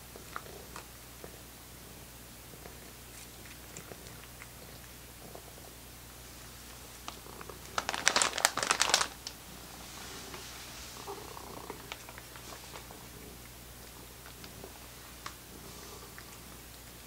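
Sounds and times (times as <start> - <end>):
cat licking and chewing: 0.0 - 1.4, 2.5 - 5.8
plastic bag crinkling: 7.5 - 9.4, 11.7 - 12.5.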